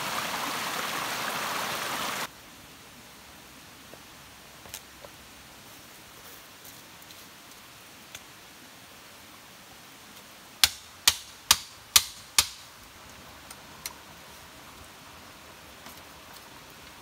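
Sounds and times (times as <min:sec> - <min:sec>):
stake hammered into ground: 0:10.6 - 0:12.7.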